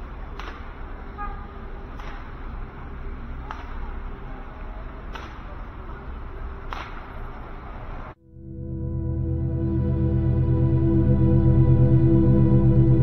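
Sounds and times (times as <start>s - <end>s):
city and traffic noise: 0.0s - 8.5s.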